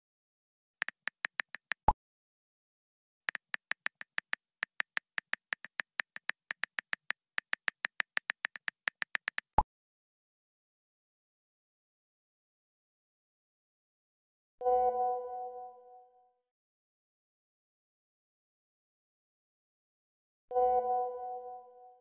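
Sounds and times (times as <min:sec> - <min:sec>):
phone keyboard clicks: 0:00.8 - 0:02.0, 0:03.3 - 0:09.6.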